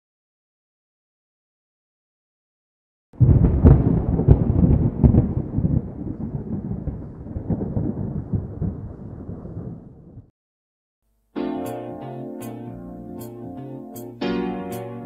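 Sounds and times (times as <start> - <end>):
thunder crack and rumble: 3.2 - 10.3.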